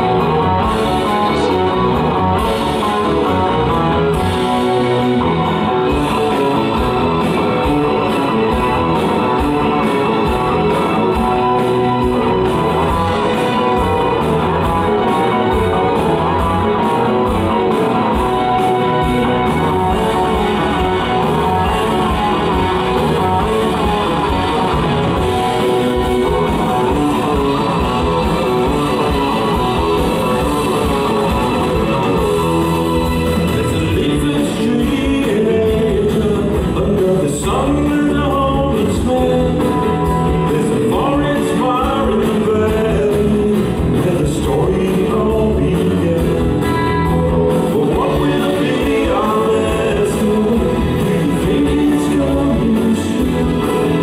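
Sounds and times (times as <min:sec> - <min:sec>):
man singing: 0:00.0 - 0:08.6, 0:19.4 - 0:54.0
bass guitar: 0:00.0 - 0:54.0
drums: 0:00.0 - 0:54.0
electric guitar: 0:00.0 - 0:54.0.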